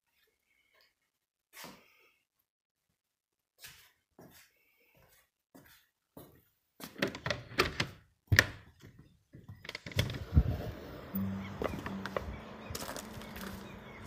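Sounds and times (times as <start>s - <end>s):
outdoor ambience: 3.6s - 14.0s
door handle and latch clicking: 7.0s - 8.6s
low steady hum: 9.9s - 14.0s.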